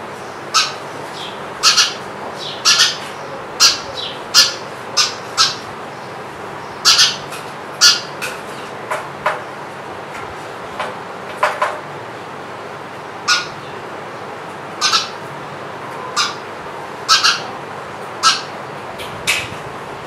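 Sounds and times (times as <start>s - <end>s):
sparrow chirping: 0.5s - 8.1s, 13.3s - 13.8s, 14.8s - 15.2s, 17.1s - 17.5s.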